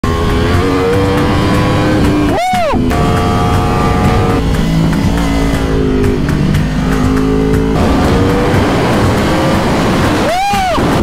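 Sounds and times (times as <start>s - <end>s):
wind rush: 7.7s - 11.0s.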